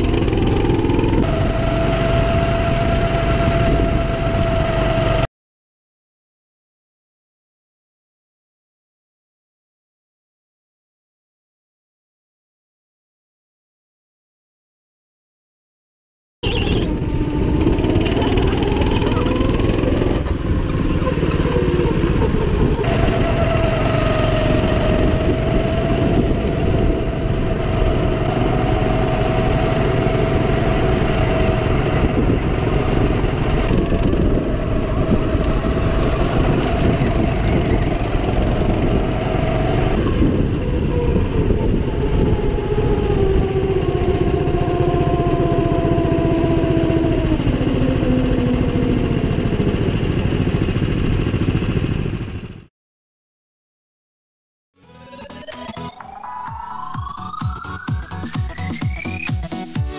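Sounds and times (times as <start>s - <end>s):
go-kart engine running hard: 0.0s - 5.3s, 16.4s - 52.7s.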